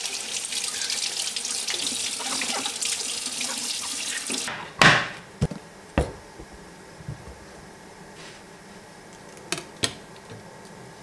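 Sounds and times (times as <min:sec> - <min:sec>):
kitchen tap running: 0:00.0 - 0:04.6.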